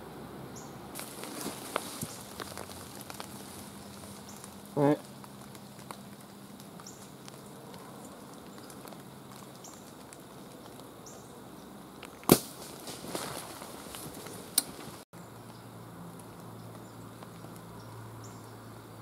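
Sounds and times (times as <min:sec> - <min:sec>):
rustling in brush: 0:01.0 - 0:10.7, 0:12.5 - 0:15.1
loud sharp snap: 0:12.2 - 0:12.8.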